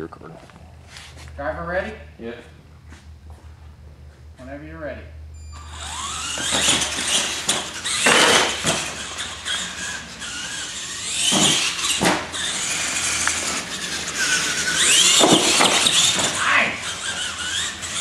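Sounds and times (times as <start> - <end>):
toy truck motor whine: 5.4 - 18.0
tyre squeal: 5.4 - 18.0.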